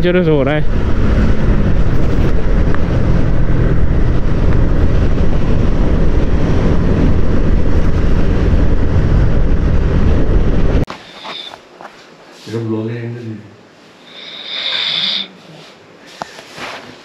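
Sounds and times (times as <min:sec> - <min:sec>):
motorcycle engine cruising: 0:00.0 - 0:11.5
wind rushing over microphone: 0:00.1 - 0:11.5.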